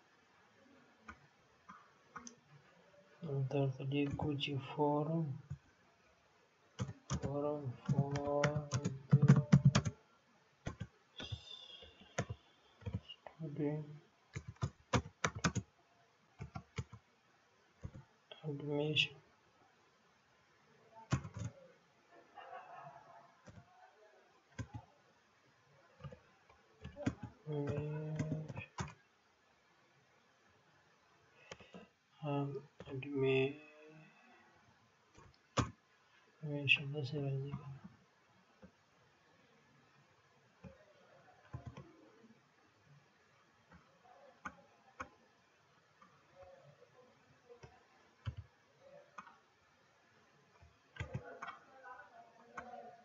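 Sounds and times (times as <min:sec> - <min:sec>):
computer mouse and key clicks: 0:06.8 - 0:09.9, 0:10.7 - 0:13.1, 0:14.3 - 0:15.7, 0:21.1 - 0:21.6, 0:31.5 - 0:31.8, 0:35.1 - 0:35.8, 0:41.5 - 0:41.9, 0:47.6 - 0:48.5, 0:50.6 - 0:51.7
keyboard keystrokes clicking: 0:07.9 - 0:09.9.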